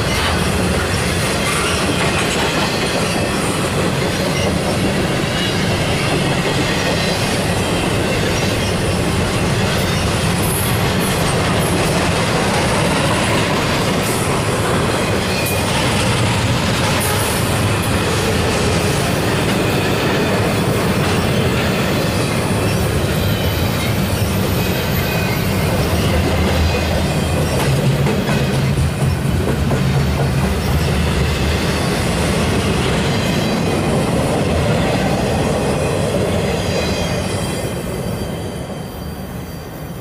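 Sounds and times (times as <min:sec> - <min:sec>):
rumble of steel train wheels: 0:00.0 - 0:40.0.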